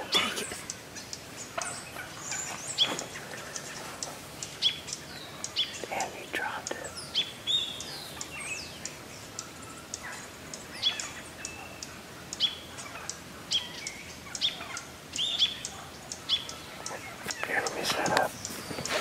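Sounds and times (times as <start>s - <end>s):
turkeys chirping: 0.0s - 19.0s
sharp ticks: 0.6s - 1.7s.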